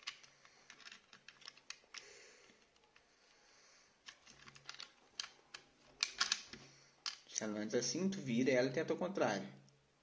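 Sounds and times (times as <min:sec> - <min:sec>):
plastic parts clicking and tapping: 0:00.0 - 0:03.4, 0:04.0 - 0:07.4.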